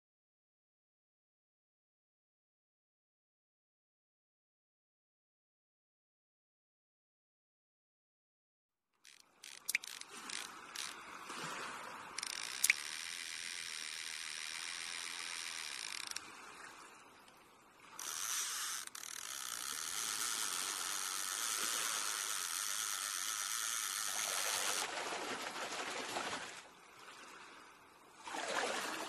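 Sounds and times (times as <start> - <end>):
fishing reel ratcheting whirr: 9.0 - 11.0, 12.2 - 16.2, 18.0 - 24.9
sharp click: 9.1 - 10.9.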